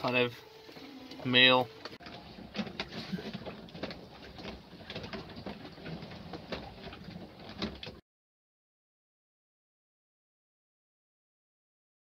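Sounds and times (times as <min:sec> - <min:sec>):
boat creaking and knocking: 0:00.0 - 0:08.0
water washing along hull: 0:00.0 - 0:08.0.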